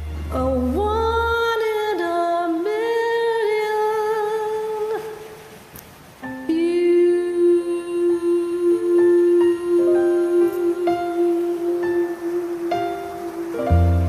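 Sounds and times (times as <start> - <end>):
woman humming: 6.5 - 14.0.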